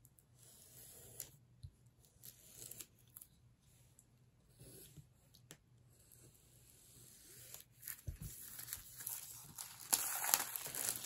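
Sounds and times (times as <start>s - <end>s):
plastic shrink wrap tearing and crinkling: 7.8s - 11.0s.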